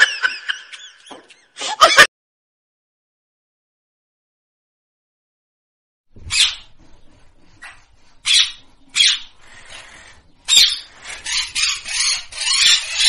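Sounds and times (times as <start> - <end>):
parakeet squawking: 6.3 - 6.7, 7.6 - 13.0.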